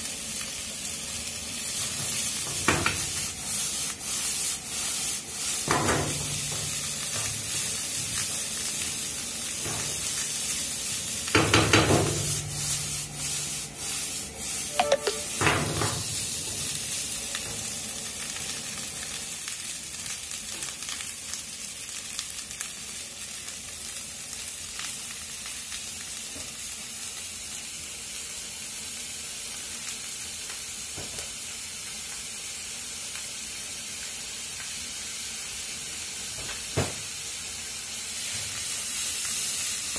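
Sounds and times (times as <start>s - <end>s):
rice sizzling in a frying pan: 0.0s - 39.9s.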